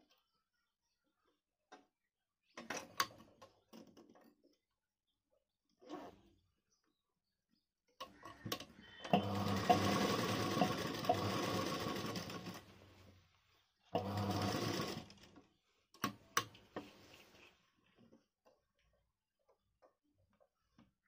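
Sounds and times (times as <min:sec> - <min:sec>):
sewing machine stitching: 0:09.0 - 0:12.7, 0:14.0 - 0:15.3.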